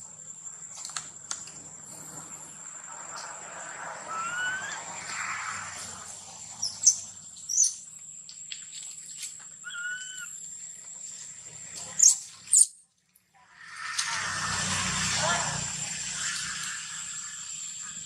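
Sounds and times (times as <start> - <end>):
insect drone: 0.0 - 12.7, 13.3 - 18.0
slurred whistled bird calls: 4.1 - 5.3, 9.6 - 10.4
birds calling: 9.6 - 10.4.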